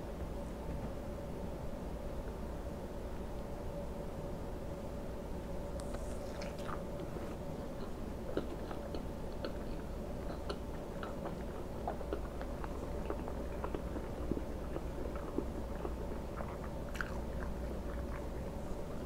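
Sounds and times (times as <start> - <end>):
steady low hum: 0.0 - 19.0
close chewing: 5.8 - 19.0.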